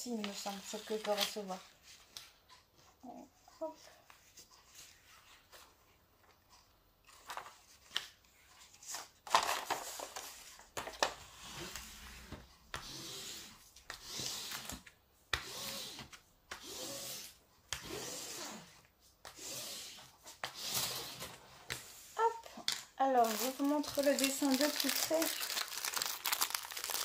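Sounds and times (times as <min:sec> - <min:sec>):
hands crinkling paper sheet: 0:23.0 - 0:27.0.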